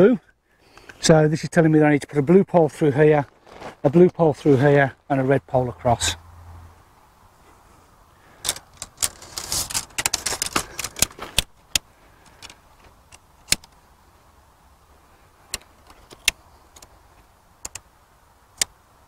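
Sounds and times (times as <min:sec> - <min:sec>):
tent pole sections clicking: 0:08.4 - 0:13.8, 0:15.4 - 0:18.8.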